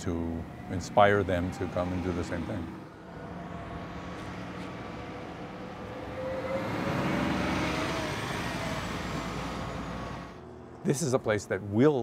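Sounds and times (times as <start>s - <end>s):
bus driving past: 0.0s - 11.0s.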